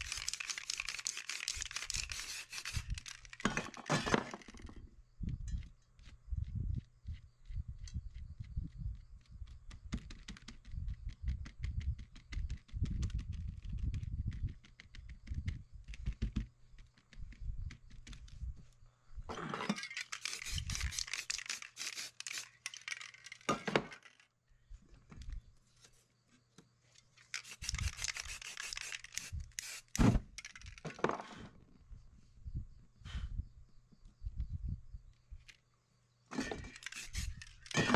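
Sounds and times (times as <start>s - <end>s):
aerosol spray paint hissing: 0.0s - 3.1s, 20.2s - 22.6s, 27.4s - 30.0s, 36.8s - 37.6s.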